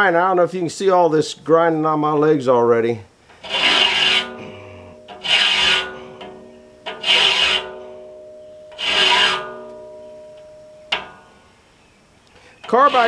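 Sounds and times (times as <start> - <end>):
file rasping on steel teeth: 3.4 - 6.3, 6.9 - 7.8, 8.7 - 9.6
steel blade ringing: 4.0 - 11.4.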